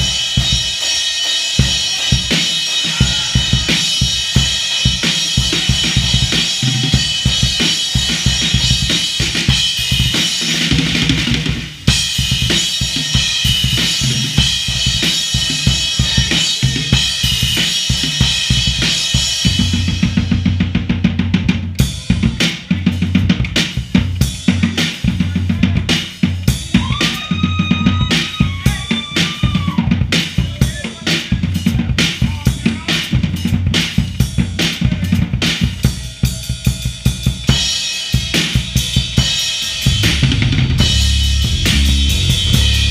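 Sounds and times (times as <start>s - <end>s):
cymbals crashing: 0.0s - 10.6s, 37.5s - 42.9s
drum kit playing fast: 0.0s - 42.9s
bass drum and tom strokes: 38.8s - 42.9s.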